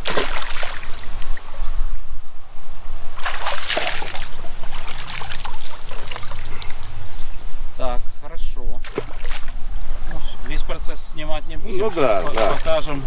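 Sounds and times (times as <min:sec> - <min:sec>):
water splashing: 0:00.0 - 0:01.5, 0:03.1 - 0:06.9, 0:08.8 - 0:10.3, 0:11.8 - 0:13.0.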